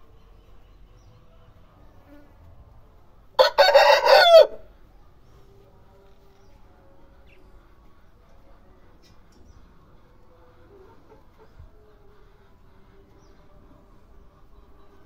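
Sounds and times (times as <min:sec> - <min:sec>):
rooster crowing: 0:03.4 - 0:04.7.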